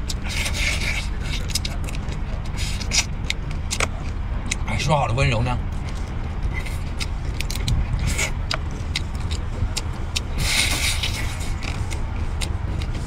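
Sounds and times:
steady low rumble: 0.0 - 13.0
slurping crab meat: 0.1 - 3.1.

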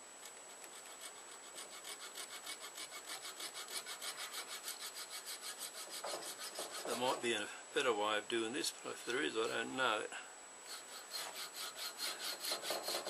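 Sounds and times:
hand saw cutting antler: 0.4 - 7.2, 10.7 - 13.0.

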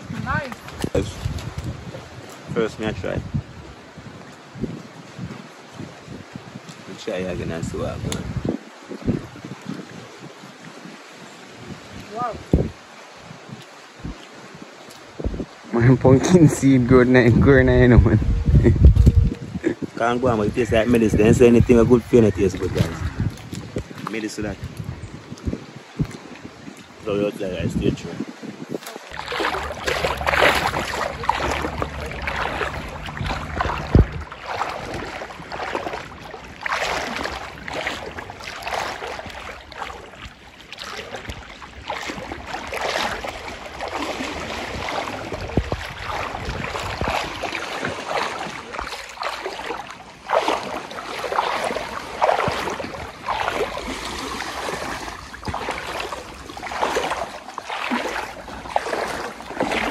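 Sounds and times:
water splashing: 0.0 - 59.9
low steady hum: 29.1 - 36.0.

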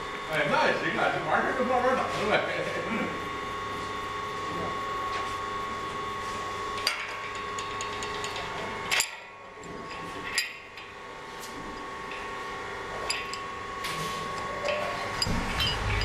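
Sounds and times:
steady background hum: 0.0 - 16.0
metal parts clinking: 14.4 - 16.0.

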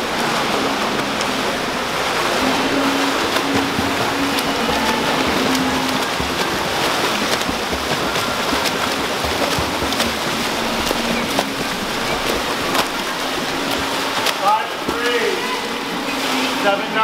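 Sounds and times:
swimmers splashing water: 0.0 - 17.0.

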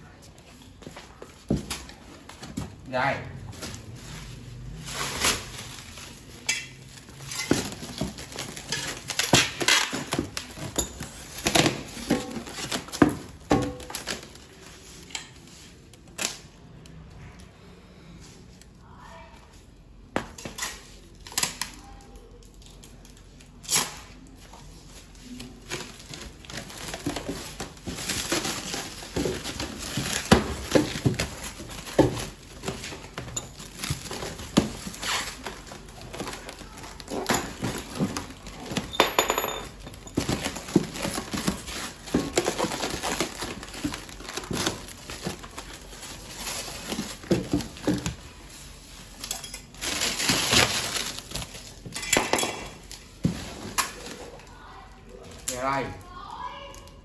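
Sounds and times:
plastic wrap crinkling: 3.5 - 16.5, 21.0 - 39.0, 39.7 - 52.0.

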